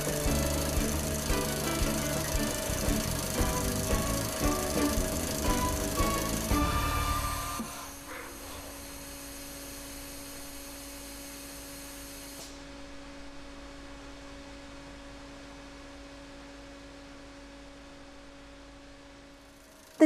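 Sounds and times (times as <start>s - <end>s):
low two-tone hum: 0.0s - 20.0s.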